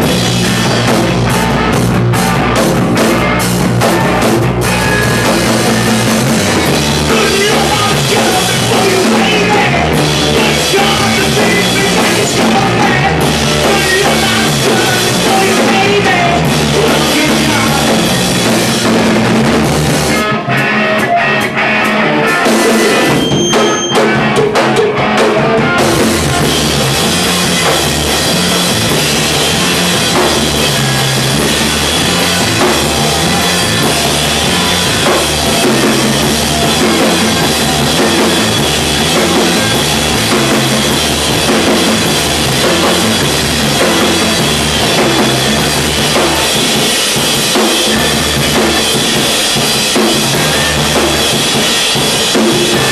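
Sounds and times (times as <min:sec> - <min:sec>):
rock band playing loud: 0:00.0 - 0:52.9.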